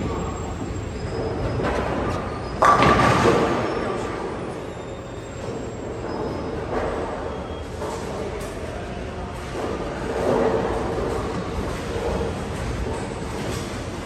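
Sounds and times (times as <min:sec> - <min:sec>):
bowling alley noise: 0:00.0 - 0:14.0
bowling pins crashing: 0:02.6 - 0:04.1.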